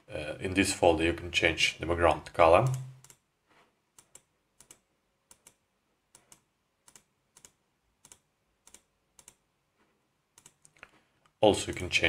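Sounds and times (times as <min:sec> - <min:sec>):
computer mouse clicking: 0:02.7 - 0:03.2, 0:03.9 - 0:09.4, 0:10.3 - 0:11.9.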